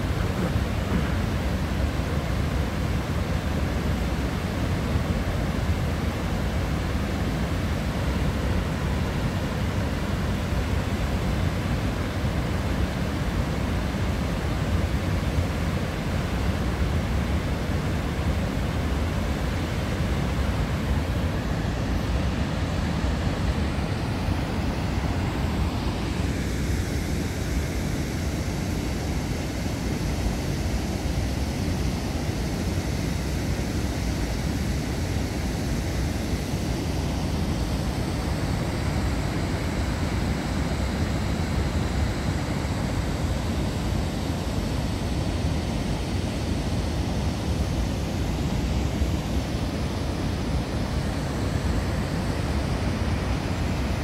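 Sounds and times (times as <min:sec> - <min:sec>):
water rushing over a weir: 0:00.0 - 0:54.0.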